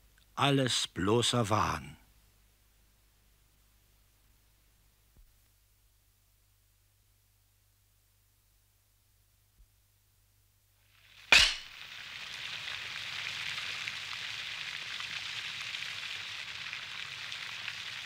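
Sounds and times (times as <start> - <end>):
fountain splashing into pond: 10.9 - 18.0.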